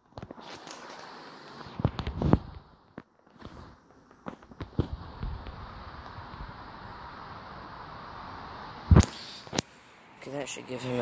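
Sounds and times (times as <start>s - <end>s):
steady whooshing noise: 4.5s - 11.0s.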